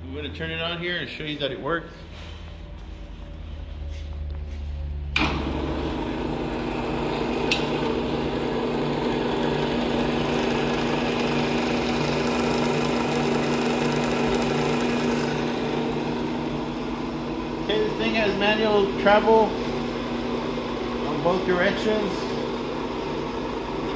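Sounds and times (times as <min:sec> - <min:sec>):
electric motor humming: 0:05.1 - 0:23.9.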